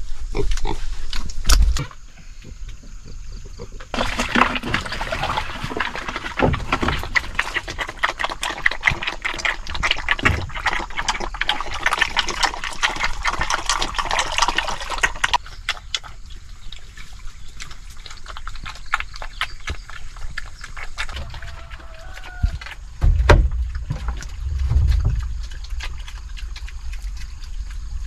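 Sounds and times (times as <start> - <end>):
piglets slurping and chomping: 2.5 - 28.0
wet feed splashing into trough: 3.9 - 15.4.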